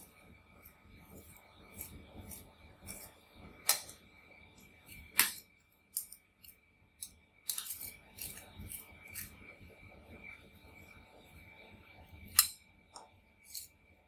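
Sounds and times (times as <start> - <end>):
metal spatulas scraping and tapping: 4.9 - 9.4, 12.3 - 12.6, 13.4 - 13.8.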